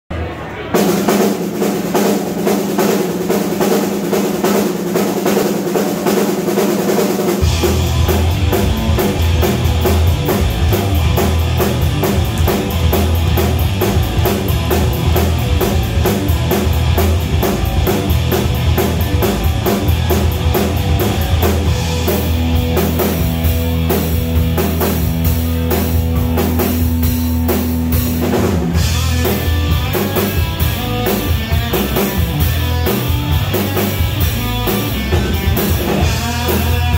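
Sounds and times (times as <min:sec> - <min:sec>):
rock band playing: 0:00.1 - 0:36.9
bass and kick drum: 0:07.4 - 0:36.9.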